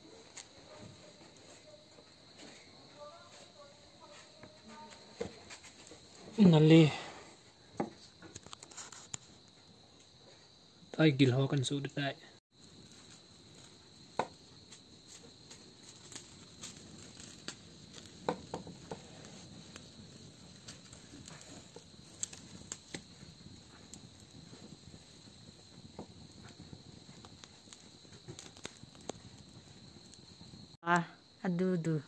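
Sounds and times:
wood fire crackling and popping: 0.0s - 11.8s, 12.5s - 32.0s
insect trill: 0.0s - 32.0s.

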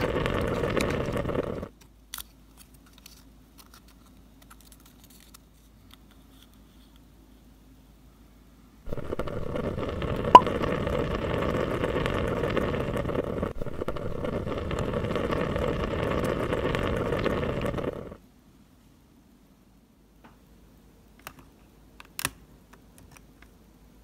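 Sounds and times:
curry bubbling in a pot: 0.0s - 1.7s, 8.9s - 18.2s.

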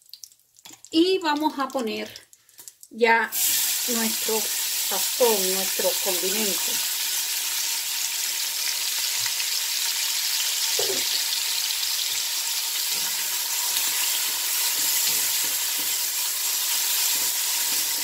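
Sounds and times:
vegetables sizzling in oil: 0.0s - 18.0s
spatula stirring and scraping: 12.8s - 18.0s.

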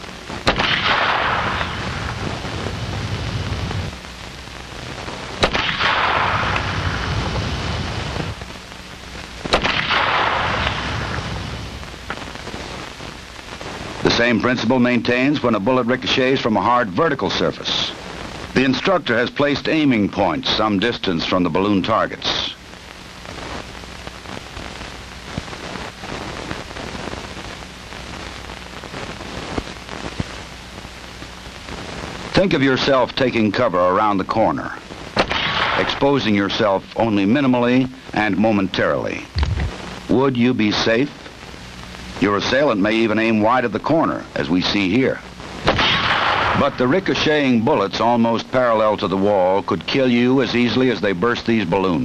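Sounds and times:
faint crackles: 0.0s - 52.0s
film soundtrack hiss: 0.0s - 52.0s
gunshots with ricochet: 0.4s - 1.7s, 5.4s - 6.6s, 9.5s - 10.8s, 35.2s - 35.9s, 45.7s - 46.6s
low hum: 35.9s - 40.3s.

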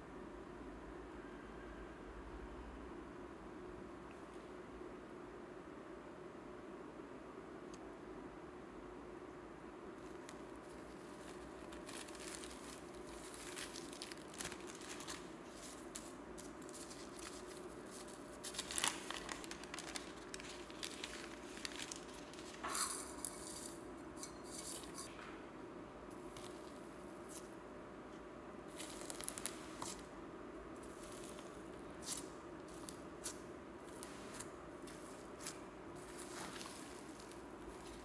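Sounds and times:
faint steady hum: 0.0s - 38.0s
foil and paper crinkling: 10.1s - 23.6s, 28.7s - 30.0s, 34.8s - 38.0s.

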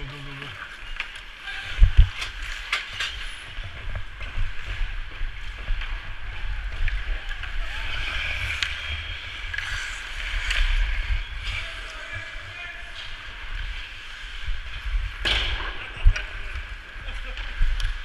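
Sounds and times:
hockey sticks clacking: 2.1s - 18.0s
ice skates scraping on ice: 2.3s - 15.0s.

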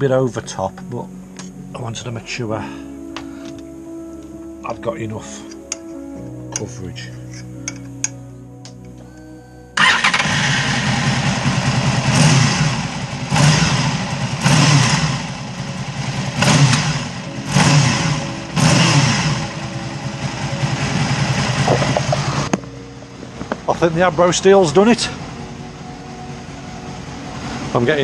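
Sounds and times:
motorcycle engine revving: 9.8s - 22.7s, 23.3s - 28.0s.

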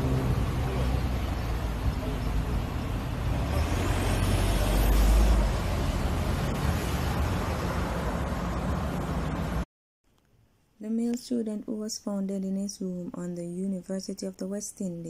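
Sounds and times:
cars driving past: 0.0s - 9.6s.

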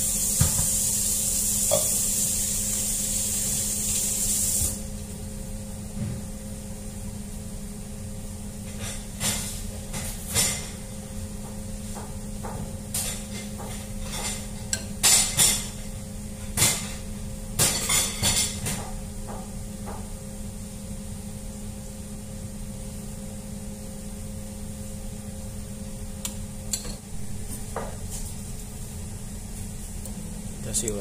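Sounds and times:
low hum: 26.8s - 30.7s.

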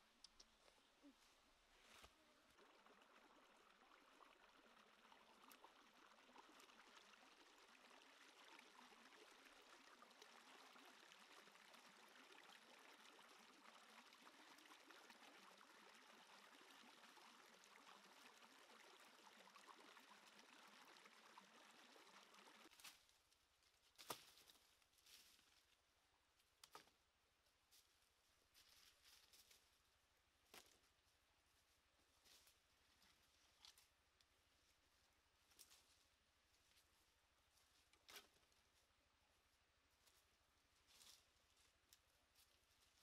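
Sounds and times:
stream trickling: 1.6s - 23.1s.

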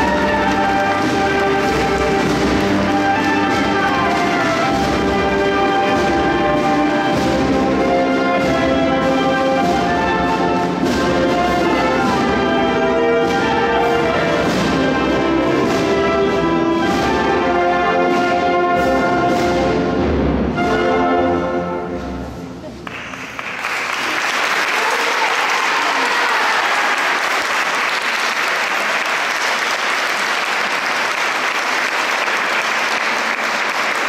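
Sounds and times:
brass band playing a march: 0.0s - 22.8s.

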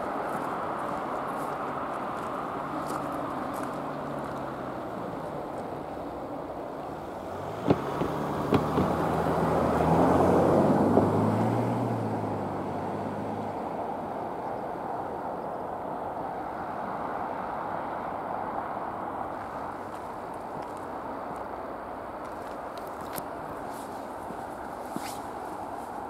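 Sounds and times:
outdoor rumble: 0.0s - 14.0s
vehicle engine hum: 0.0s - 26.0s
sharp knocks: 7.6s - 9.0s.

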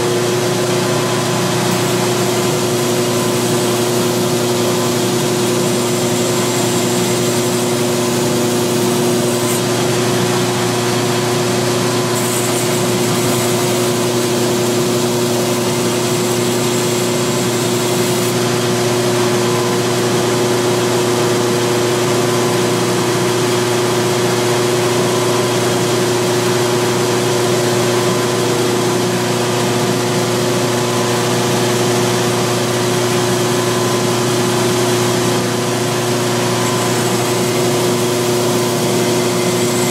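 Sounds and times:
belt grinder motor humming: 0.1s - 18.6s, 34.0s - 39.9s
steel hissing on grinder belt: 1.4s - 18.4s, 35.4s - 39.9s.

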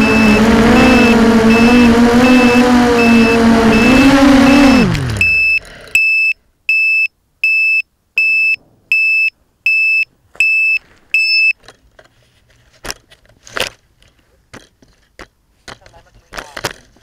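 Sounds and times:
high-pitched electronic beeps: 0.0s - 11.6s
knocks and rustles of handling: 10.3s - 17.0s.

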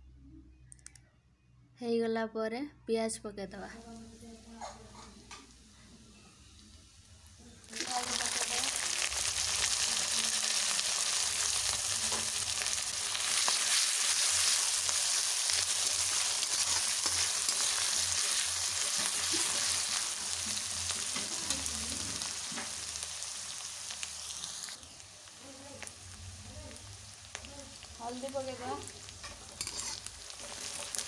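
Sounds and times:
onions sizzling in oil: 3.7s - 31.0s
metal spatula scraping pan: 29.2s - 31.0s.

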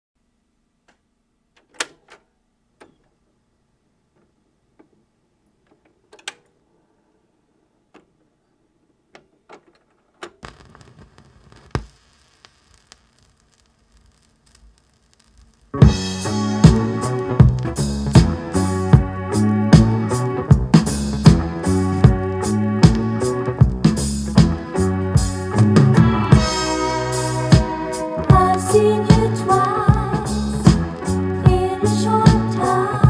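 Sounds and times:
vinyl surface hiss: 10.4s - 33.0s
stylus pop: 25.7s - 33.0s.

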